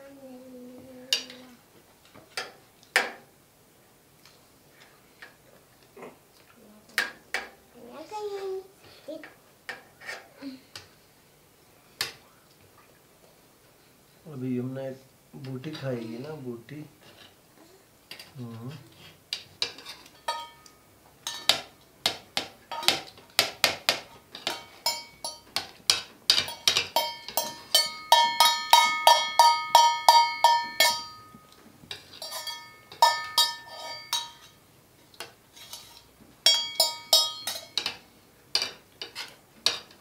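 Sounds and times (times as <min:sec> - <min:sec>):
spoons clinking on metal plates: 0:19.3 - 0:23.2, 0:23.9 - 0:34.6, 0:35.2 - 0:40.0.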